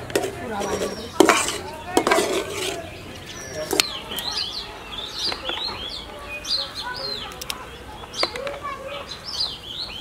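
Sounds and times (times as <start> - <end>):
small birds chirping: 0.0 - 10.0
metal spatula scraping frying pan: 0.1 - 2.9.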